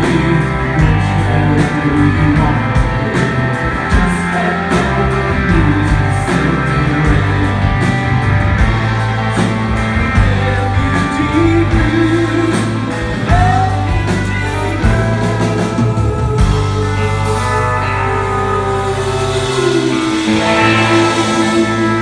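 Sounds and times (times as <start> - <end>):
live rock band playing: 0.0 - 22.0
steady cymbal beat: 16.6 - 22.0.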